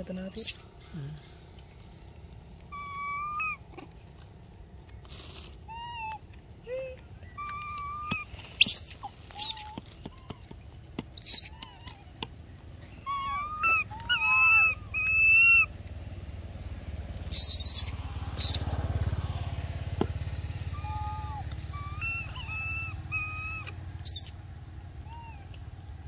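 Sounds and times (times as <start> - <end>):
monkey shrieks: 0.4 - 0.6, 2.7 - 3.6, 7.4 - 9.8, 11.2 - 12.1, 12.9 - 15.7, 17.3 - 18.6, 20.7 - 24.3
infant monkey cooing and whimpering: 0.4 - 1.1, 2.7 - 4.0, 5.7 - 10.5, 11.2 - 15.7, 17.3 - 18.6, 20.7 - 24.3.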